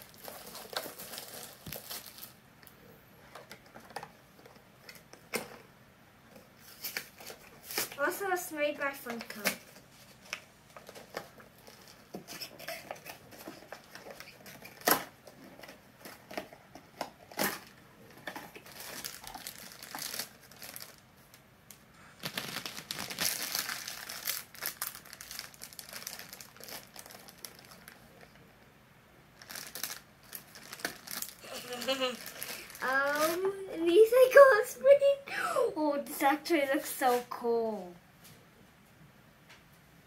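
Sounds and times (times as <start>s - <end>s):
foil bag crinkling: 0.0s - 2.4s, 17.3s - 21.4s, 22.0s - 28.4s, 29.4s - 34.5s
packaging rustling: 0.0s - 2.4s, 9.0s - 21.4s, 22.0s - 28.4s, 29.4s - 34.4s.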